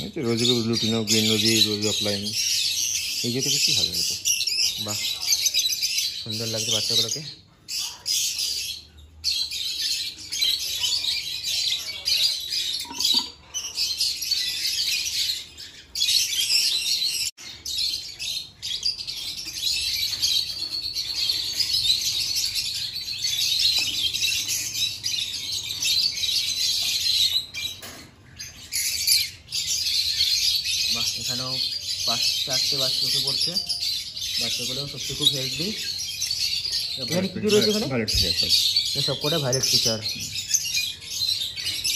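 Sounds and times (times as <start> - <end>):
small parrots chirping and chattering: 0.0 - 41.9.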